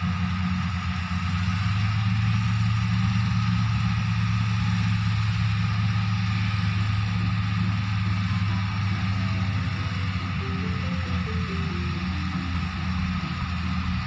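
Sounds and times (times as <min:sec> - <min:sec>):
diesel engine running steadily: 0:00.0 - 0:14.0
machinery noise: 0:04.2 - 0:14.0.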